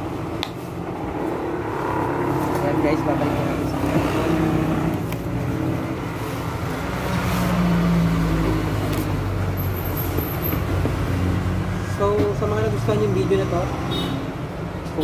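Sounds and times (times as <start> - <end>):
vehicle engine hum: 0.0 - 14.0
low rumble of road traffic: 0.0 - 15.0.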